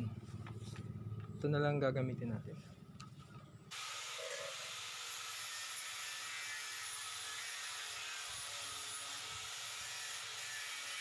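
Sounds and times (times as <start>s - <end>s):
angle grinder sanding steel: 3.7s - 11.0s.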